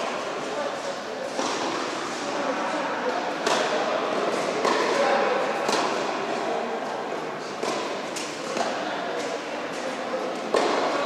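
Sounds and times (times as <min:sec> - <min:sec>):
murmur of voices: 0:00.0 - 0:11.0
tennis ball hit by racket: 0:03.4 - 0:03.8, 0:04.6 - 0:05.0, 0:05.6 - 0:06.0, 0:07.6 - 0:09.3, 0:10.4 - 0:11.0.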